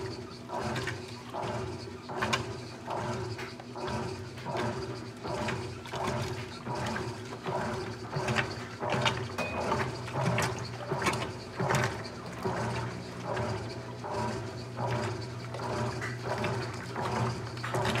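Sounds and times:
washing machine drive hum: 0.0 - 18.0
washing machine splashing swish: 0.0 - 18.0.

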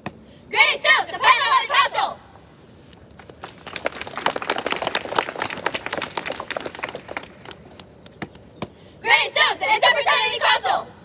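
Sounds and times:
crowd clapping: 3.2 - 8.2.

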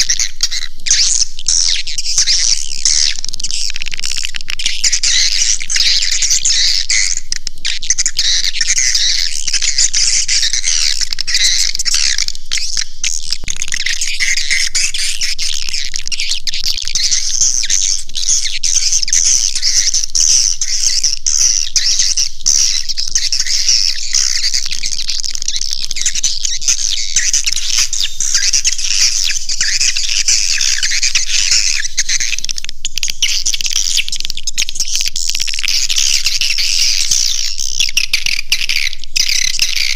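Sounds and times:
swiftlet chirps and twitters: 13.7 - 39.9.

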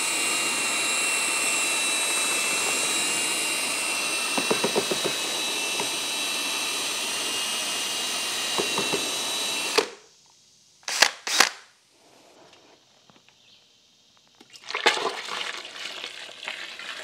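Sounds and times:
power drill whining: 0.0 - 10.0, 10.9 - 11.5.

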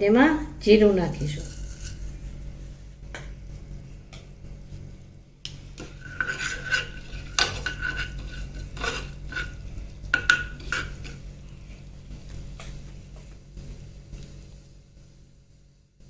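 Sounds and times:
seeds frying faintly: 0.0 - 16.0
spoon scraping a saucepan: 1.2 - 2.1, 5.8 - 11.2.

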